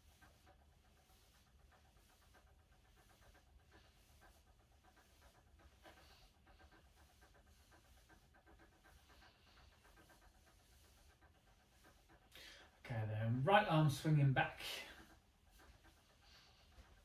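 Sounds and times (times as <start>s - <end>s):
soft pulses: 0.0s - 17.0s.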